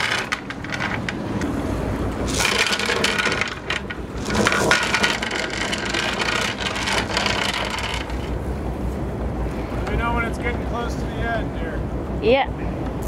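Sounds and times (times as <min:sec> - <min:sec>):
anchor chain rattling: 0:00.0 - 0:01.6, 0:02.2 - 0:08.5.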